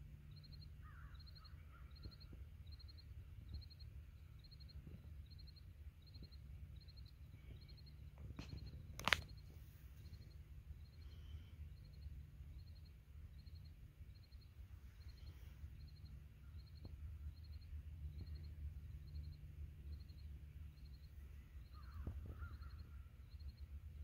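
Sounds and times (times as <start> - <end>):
insect chirping: 0.1 - 24.0
sharp click: 8.4 - 9.4
wind rumble on microphone: 21.4 - 24.0.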